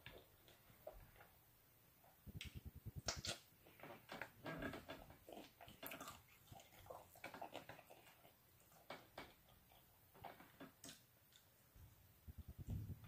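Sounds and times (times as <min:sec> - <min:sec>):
chewing and lip smacks: 0:02.4 - 0:03.8, 0:04.9 - 0:10.2.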